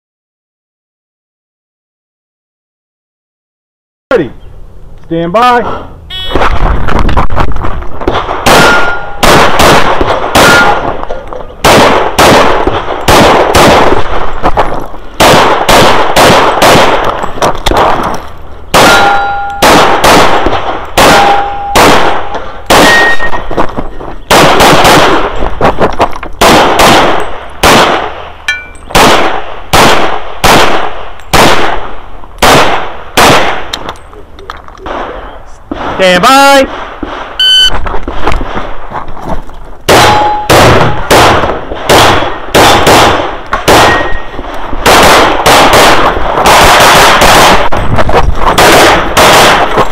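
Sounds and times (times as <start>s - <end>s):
rapid pistol fire: 8.0s - 11.0s, 11.6s - 18.1s, 18.7s - 23.3s, 24.3s - 25.8s, 26.4s - 28.3s, 28.9s - 33.7s, 39.9s - 44.2s, 44.8s - 49.9s
metallic ringing of steel targets: 8.6s - 9.2s, 18.8s - 19.7s, 21.1s - 21.8s, 22.8s - 23.5s, 28.5s - 28.9s, 40.0s - 41.0s, 43.8s - 44.4s.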